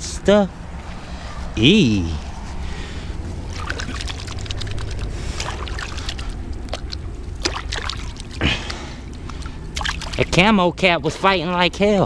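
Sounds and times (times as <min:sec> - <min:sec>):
hands splashing in water: 0:03.4 - 0:10.4.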